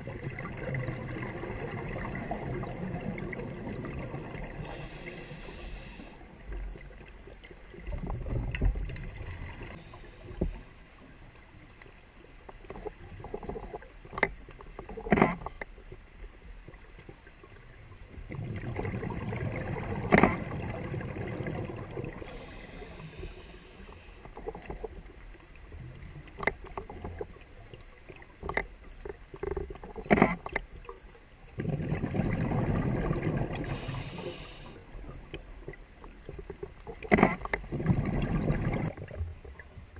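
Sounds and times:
exhaled bubbles rumbling underwater: 0.0s - 39.9s
regulator inhale hiss: 4.6s - 6.3s, 9.6s - 10.7s, 22.2s - 24.3s, 33.6s - 35.0s.

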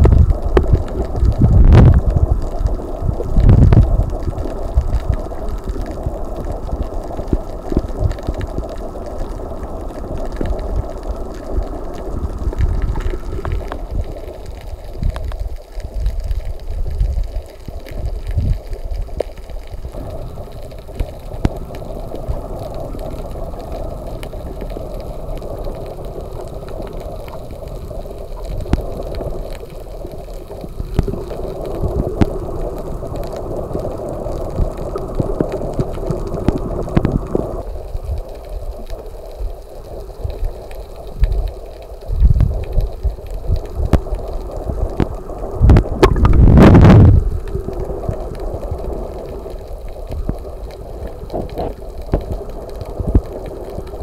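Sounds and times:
underwater hum with gurgling: 0.0s - 54.0s
loud rush of water: 45.6s - 47.2s
low thumps: 46.0s - 47.2s.

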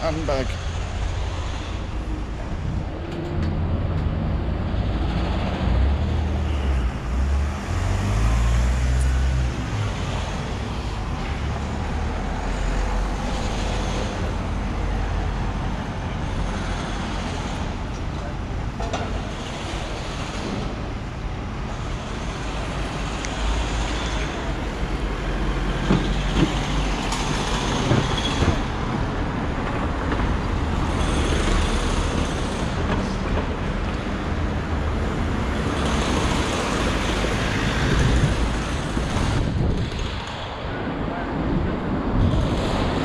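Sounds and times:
vehicles passing: 0.0s - 43.0s.

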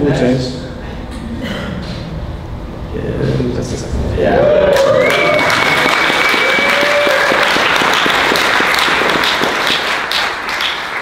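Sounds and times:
audience clapping and cheering: 4.4s - 11.0s.

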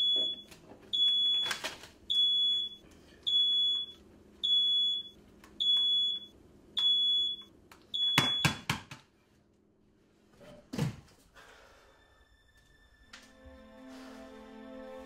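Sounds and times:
smoke alarm beeping: 0.0s - 8.7s.

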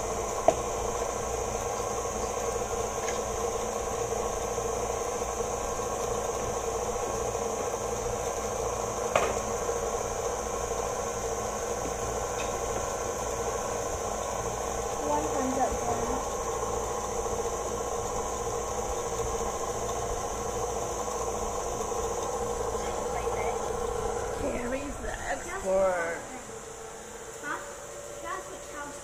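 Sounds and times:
machine humming: 0.0s - 29.0s.

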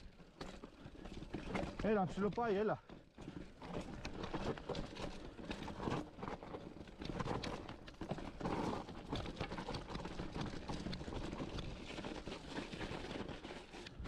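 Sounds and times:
bike rattling: 0.0s - 14.0s
tyres crunching over stones: 0.0s - 14.0s.

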